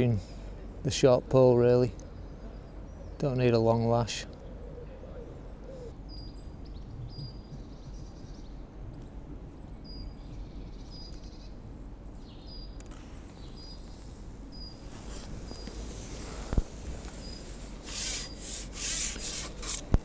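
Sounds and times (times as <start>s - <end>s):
low outdoor rumble: 0.0s - 20.0s
small bird chirping: 5.6s - 12.8s, 14.5s - 15.8s, 17.2s - 17.6s.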